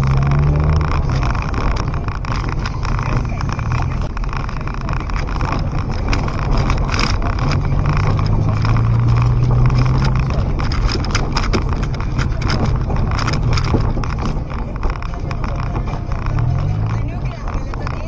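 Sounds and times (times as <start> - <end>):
car engine hum: 0.0 - 18.0
suspension knocks and rattles: 0.0 - 18.0.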